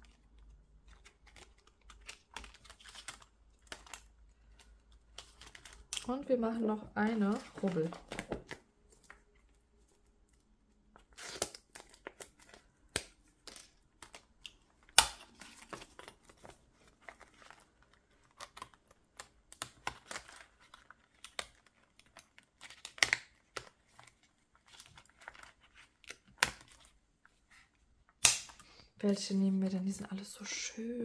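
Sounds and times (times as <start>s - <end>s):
paper and plastic pockets rustling: 0.0s - 28.2s.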